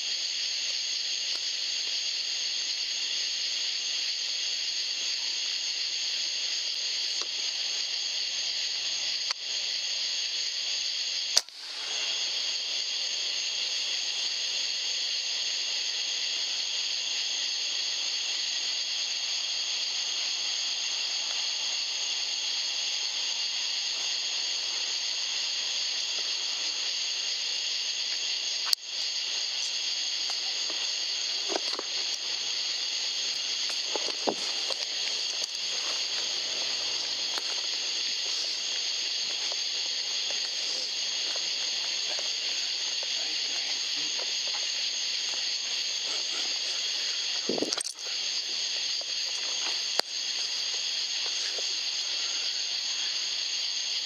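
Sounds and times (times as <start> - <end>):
electronic hiss: 0.0 - 54.0
sharp crack: 11.3 - 12.1.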